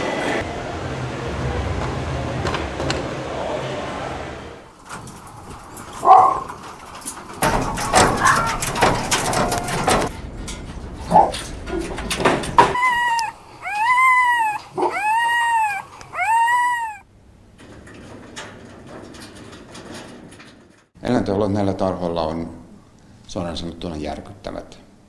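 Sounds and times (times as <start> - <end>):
clattering on wire cage: 4.8 - 13.3, 17.5 - 21.0
fox whining calls: 12.7 - 17.0
fox yelps: 12.8 - 17.0.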